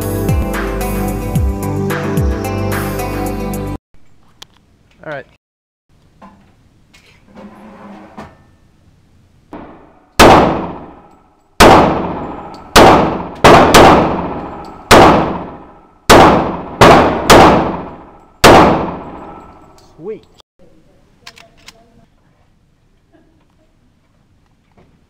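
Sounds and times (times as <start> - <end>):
pistol shots echoing indoors: 9.6 - 19.7.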